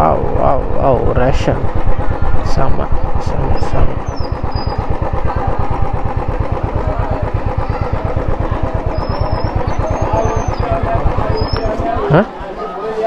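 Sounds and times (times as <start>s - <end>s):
motorcycle engine idling: 0.0s - 13.0s.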